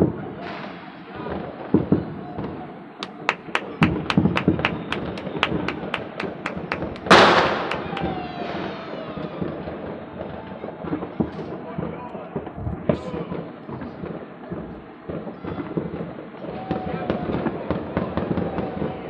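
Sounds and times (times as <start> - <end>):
distant firework thuds: 3.0 - 8.3
firecrackers cracking rapidly: 3.0 - 8.7
loud firework bang: 3.8 - 9.8.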